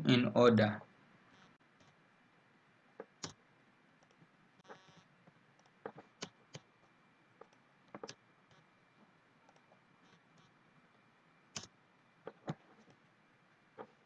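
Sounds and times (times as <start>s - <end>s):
computer mouse and keyboard clicks: 3.0s - 3.4s, 4.0s - 6.7s, 7.4s - 8.7s, 11.5s - 13.0s.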